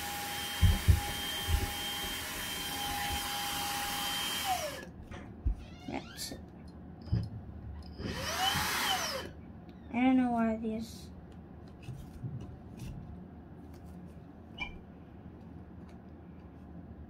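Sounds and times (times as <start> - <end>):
handheld vacuum cleaner whining: 0.0 - 4.9, 8.0 - 9.3.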